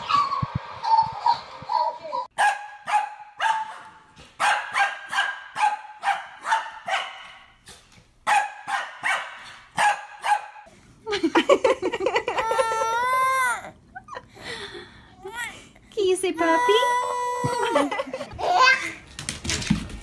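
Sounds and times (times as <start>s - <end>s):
dog barking in high yaps: 2.4s - 7.4s, 8.2s - 10.6s
baby crying: 12.3s - 13.8s, 16.4s - 18.9s.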